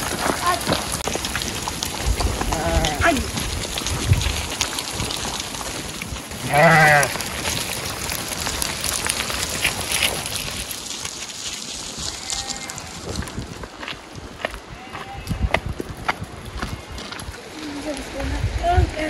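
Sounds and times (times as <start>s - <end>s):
hoof clicks on loose stones: 0.0s - 18.0s
sheep bleating: 6.4s - 7.3s, 12.1s - 13.1s, 14.7s - 15.6s.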